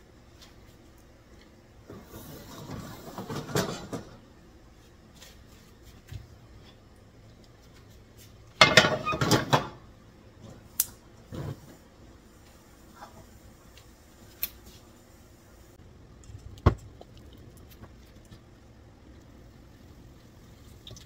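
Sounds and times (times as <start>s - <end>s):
pot rattling and scraping: 1.9s - 4.2s
frying pan clattering down: 8.6s - 9.8s.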